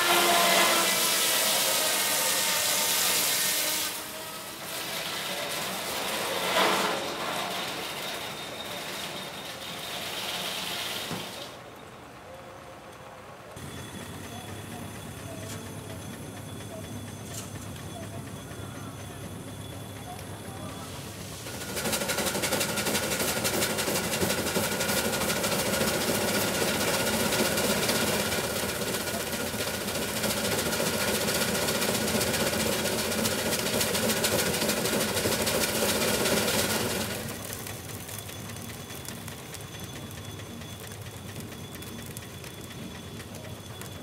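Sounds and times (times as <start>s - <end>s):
saw whine: 0.0s - 11.6s
sawmill running under load: 0.0s - 44.0s
steam engine running: 0.0s - 44.0s.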